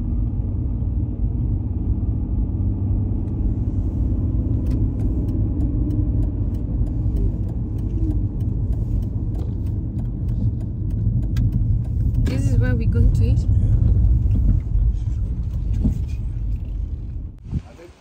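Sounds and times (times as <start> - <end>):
car engine and road rumble: 0.0 - 18.0
light ticks: 4.6 - 12.7.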